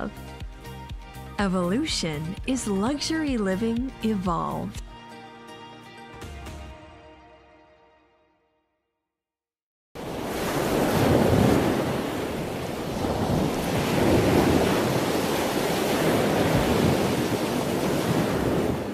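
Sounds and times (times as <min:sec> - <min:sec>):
waves washing ashore: 0:10.0 - 0:18.9.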